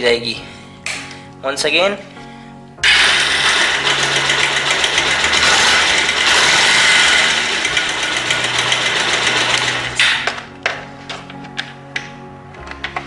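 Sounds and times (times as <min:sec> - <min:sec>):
motorcycle engine idling: 0:03.0 - 0:09.9
cam chain ticking clatter: 0:03.2 - 0:09.9.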